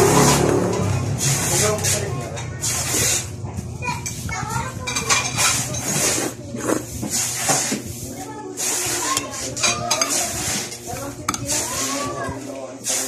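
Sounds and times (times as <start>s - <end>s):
person slurping noodles: 5.8s - 7.8s.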